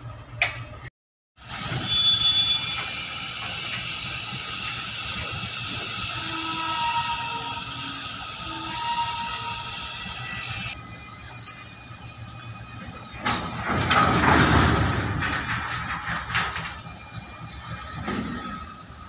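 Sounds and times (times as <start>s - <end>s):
wheel flanges squealing: 1.5s - 19.0s
wagons rattling over rail joints: 8.4s - 19.0s.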